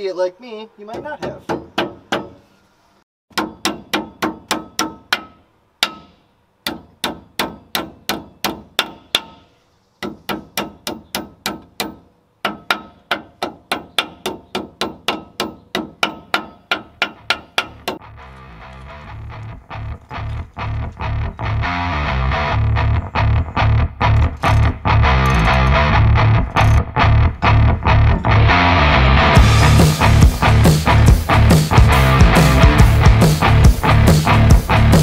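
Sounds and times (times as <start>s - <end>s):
hammer striking metal: 1.0s - 2.5s, 3.3s - 18.0s.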